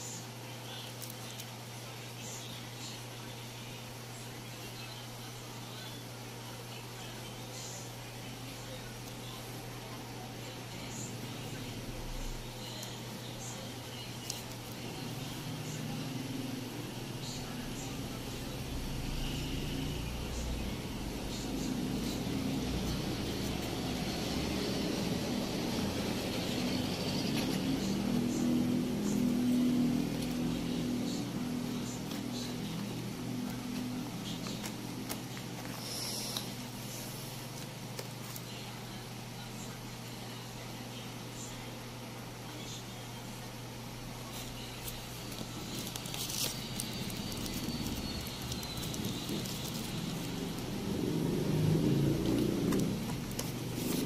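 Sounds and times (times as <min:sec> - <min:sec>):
paper crinkling: 0:00.8 - 0:01.6, 0:44.3 - 0:50.3
low droning hum: 0:10.4 - 0:37.6, 0:44.0 - 0:54.0
cardboard packaging rustling: 0:44.8 - 0:50.3.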